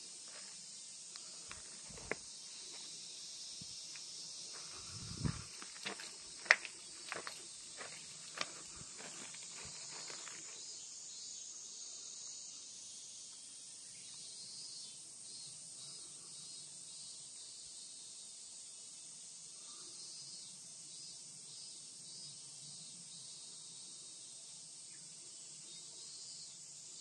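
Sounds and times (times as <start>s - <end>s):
insects trilling: 0.0s - 27.0s
footsteps: 0.2s - 0.6s, 1.4s - 2.9s, 3.9s - 10.6s.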